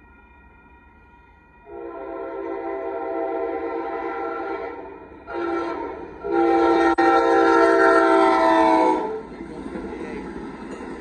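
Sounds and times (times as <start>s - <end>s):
train running rumble: 0.0s - 11.0s
train horn blasts: 1.7s - 9.3s.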